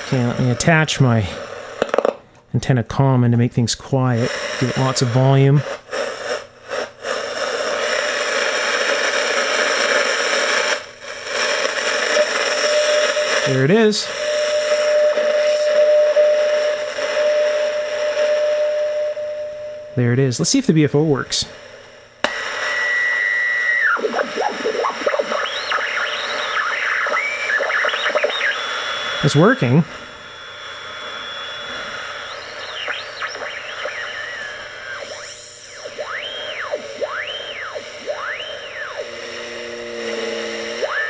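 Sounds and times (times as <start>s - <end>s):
radio static hiss: 0.0s - 19.2s, 19.9s - 41.0s
radio receiver high whistle: 22.2s - 41.0s.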